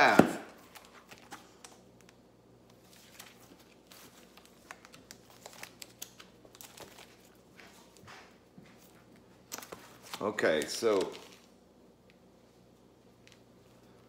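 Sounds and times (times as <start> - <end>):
plastic wrap crinkling: 2.8 - 7.8, 8.8 - 11.6.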